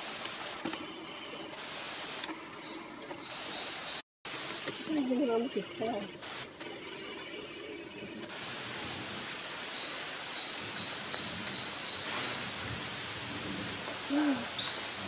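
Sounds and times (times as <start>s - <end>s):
forest ambient hiss: 0.0s - 15.0s
repeated high bird or insect call: 4.6s - 12.7s, 14.1s - 15.0s.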